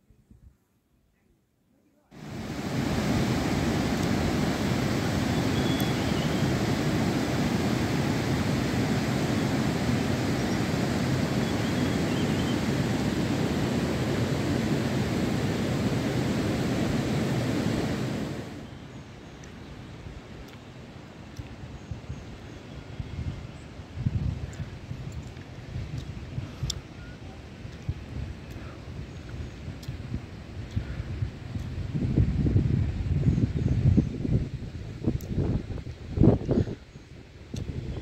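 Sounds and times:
fast mountain stream rushing: 2.2 - 18.8.

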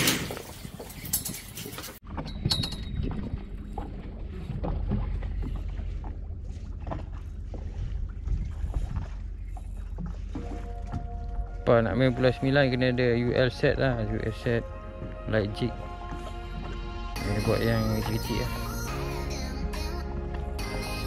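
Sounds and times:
wind rumble on microphone: 0.4 - 10.2
water lapping against boat hull: 1.9 - 21.0.

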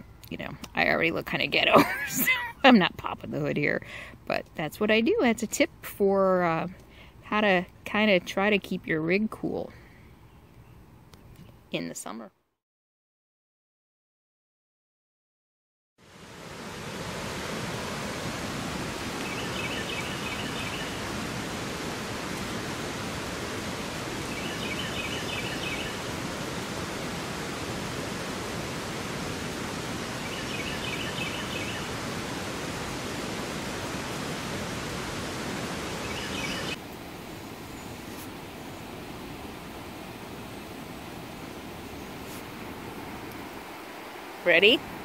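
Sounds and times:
waterfall rushing: 16.0 - 45.0.

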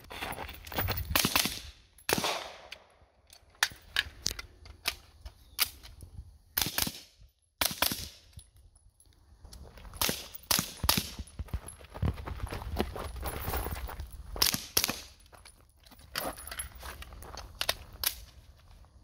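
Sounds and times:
gunshots: 1.2 - 2.7.

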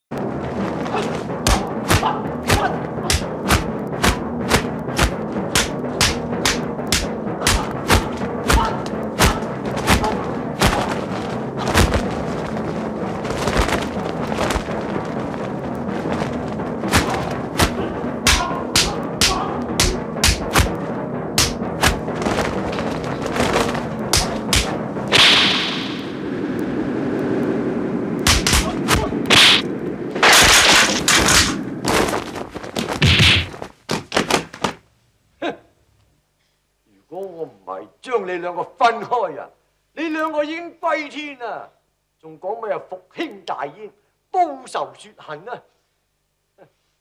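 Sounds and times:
low background noise: 0.0 - 47.0
low thuds: 0.1 - 25.3
background music score: 0.1 - 32.4
whip-like swishes of blows: 0.6 - 12.6, 16.0 - 20.8, 21.4 - 25.9, 28.3 - 31.6
punch and kick hits: 1.4 - 11.0, 11.6 - 12.1, 16.9 - 20.8, 21.4 - 25.7, 28.3 - 29.6, 32.9 - 33.6.

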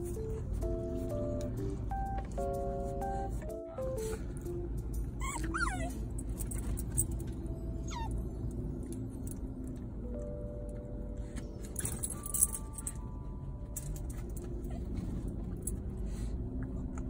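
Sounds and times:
soft background music: 0.0 - 17.0
puppy whining: 5.1 - 6.8, 7.6 - 9.0, 14.4 - 15.6.

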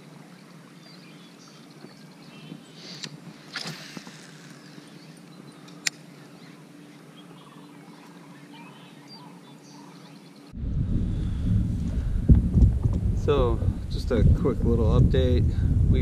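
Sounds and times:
faint bird calls: 0.0 - 10.6
low steady hum: 0.0 - 16.0
wind buffeting microphone: 10.5 - 16.0.

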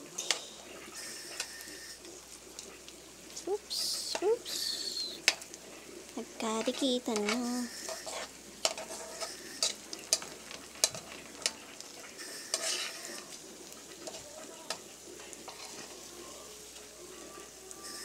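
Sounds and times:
food frying in hot oil: 0.0 - 18.0
tongs clicking against wok: 4.1 - 4.3, 6.6 - 8.9, 9.6 - 11.6, 14.0 - 15.9.

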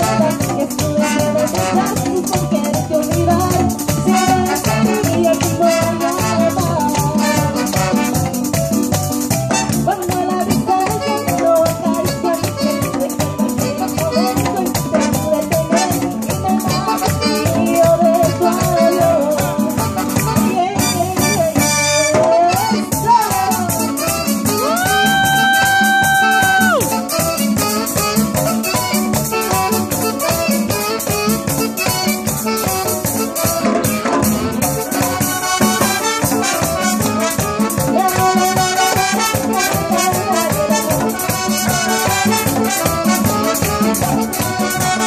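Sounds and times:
horn section: 0.0 - 2.1, 4.0 - 8.5, 9.5 - 10.0, 16.7 - 45.0
merengue band playing: 0.0 - 45.0
shaker percussion: 0.0 - 45.0.

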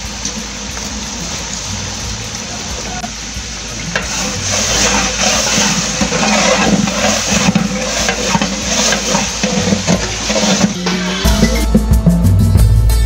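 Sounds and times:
food sloshing and sizzling: 0.0 - 11.5
metal spatula scraping pot: 3.9 - 11.4.

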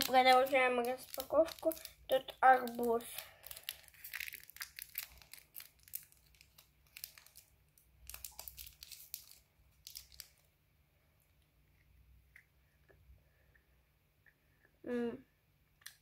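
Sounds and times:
candy wrapper crinkling: 0.0 - 10.6.

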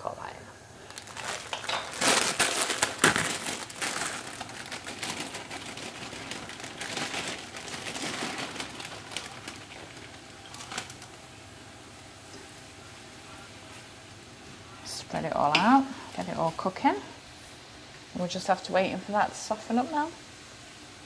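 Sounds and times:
plastic bag crinkling: 0.8 - 11.2.

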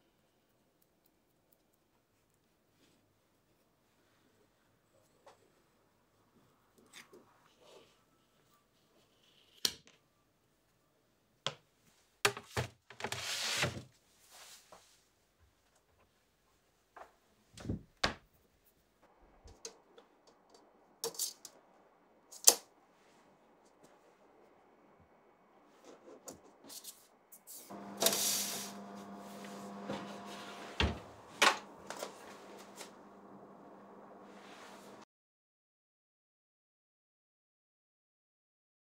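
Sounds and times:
electric oven hum: 27.6 - 35.0
oven door thump: 29.7 - 35.0.

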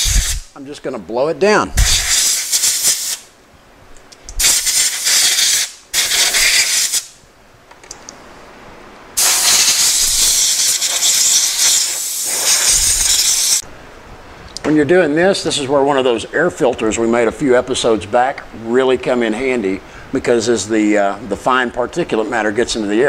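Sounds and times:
compressed air hissing from blow gun: 0.0 - 0.5, 1.8 - 3.3, 4.4 - 7.1, 9.2 - 13.6.

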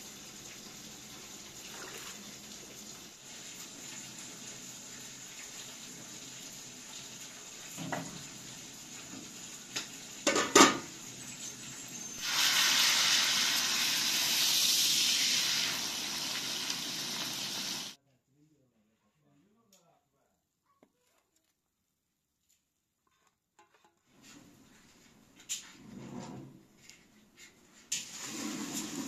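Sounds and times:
fish sizzling in hot oil: 0.0 - 18.0
metal pot lid clattering: 10.2 - 10.8.

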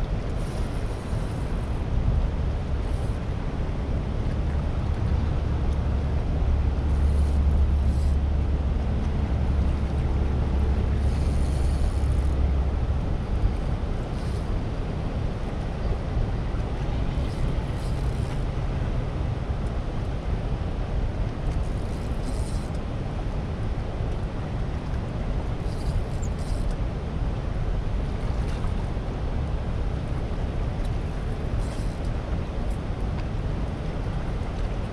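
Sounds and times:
deep low rumble: 0.0 - 19.8.

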